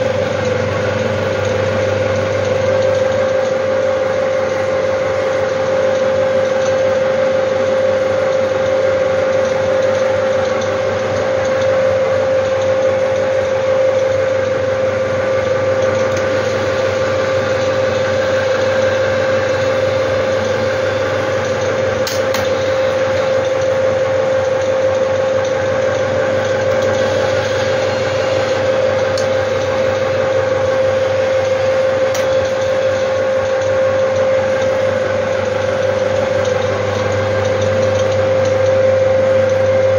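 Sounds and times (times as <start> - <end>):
film projector mechanical whir: 0.0 - 39.9
constant hum: 15.6 - 39.9.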